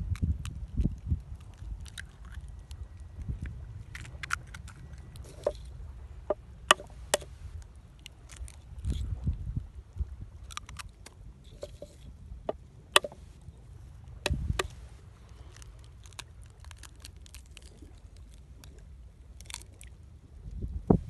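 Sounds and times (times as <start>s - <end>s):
crackles and pops: 0.0s - 5.7s, 10.4s - 11.6s, 14.0s - 20.1s
low steady rumble: 0.0s - 21.0s.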